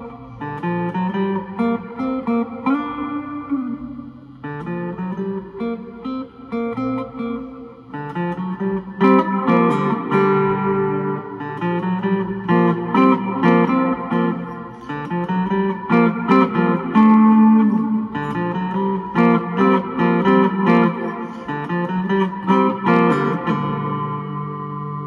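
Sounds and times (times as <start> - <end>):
electric guitar playing: 0.0 - 25.0.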